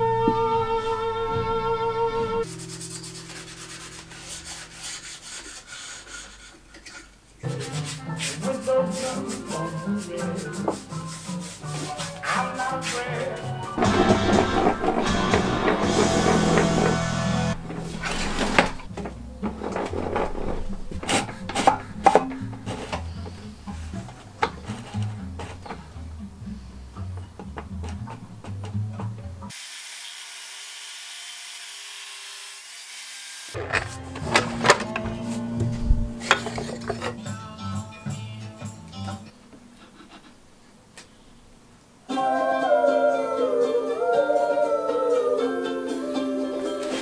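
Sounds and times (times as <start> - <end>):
background music: 0.0 - 4.8, 7.4 - 29.5, 33.6 - 39.3, 42.1 - 47.0
cloth pad rubbing wood: 2.4 - 6.4, 7.7 - 13.1
wood strip rubbing on metal table: 2.4 - 13.1, 13.8 - 18.9, 19.6 - 25.9.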